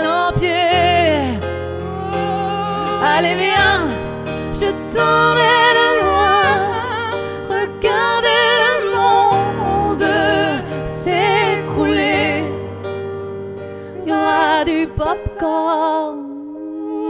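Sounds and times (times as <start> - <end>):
man and woman singing duet: 0.0 - 12.6
piano chords: 0.0 - 17.0.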